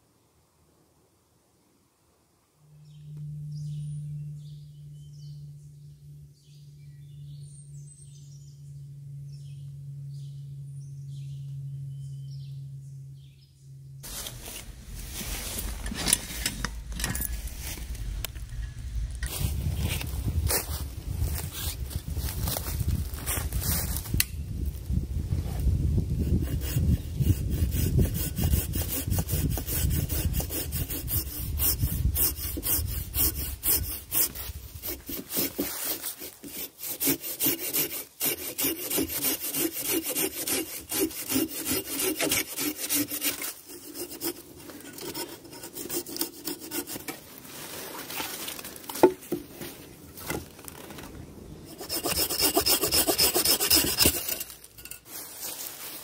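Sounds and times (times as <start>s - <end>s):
saw cutting wood: 26.2s - 47.2s, 51.7s - 54.9s.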